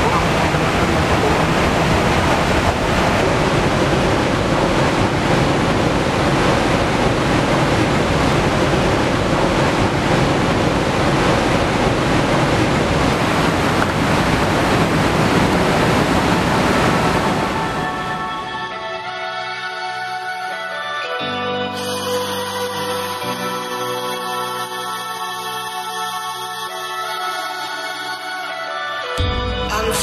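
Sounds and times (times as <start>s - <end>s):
waterfall rushing: 0.0s - 20.8s.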